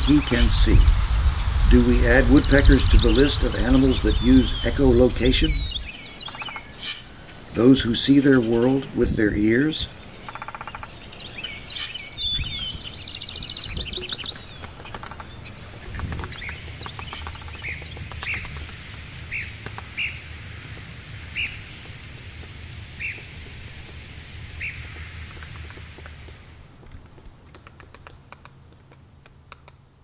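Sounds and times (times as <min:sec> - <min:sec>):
woodpecker calling high single notes: 0:00.0 - 0:22.3
bird chirps: 0:00.0 - 0:26.0
light taps: 0:25.0 - 0:29.8.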